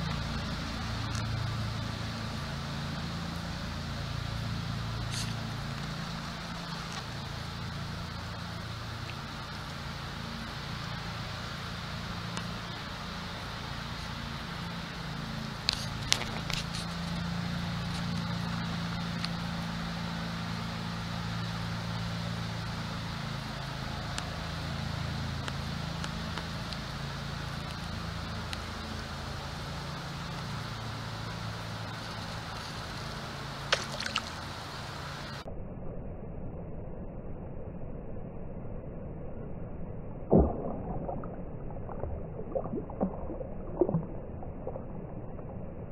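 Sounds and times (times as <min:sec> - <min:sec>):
steady low hum: 0:00.0 - 0:45.9
fish splashing at water surface: 0:33.6 - 0:34.6, 0:40.3 - 0:45.4.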